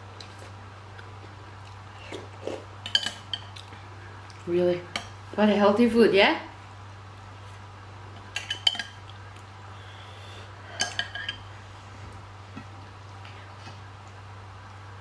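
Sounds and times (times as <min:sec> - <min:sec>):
metal spoon clinking dishes: 0:08.4 - 0:09.0, 0:10.7 - 0:11.4.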